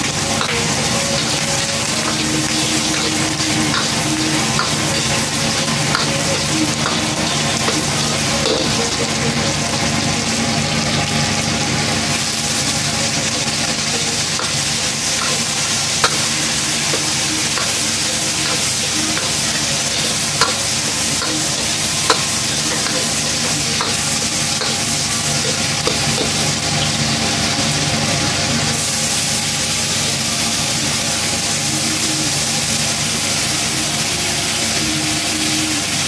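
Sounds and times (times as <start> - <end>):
food sizzling in a wok: 0.0 - 36.0
metal ladle scraping a wok: 13.6 - 26.4.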